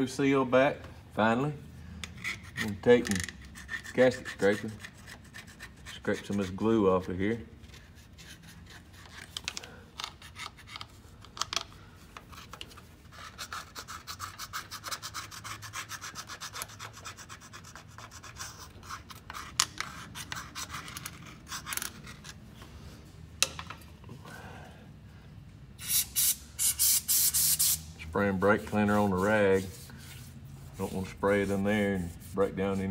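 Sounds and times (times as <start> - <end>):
gasket scraper scraping glue: 2.0 - 7.1.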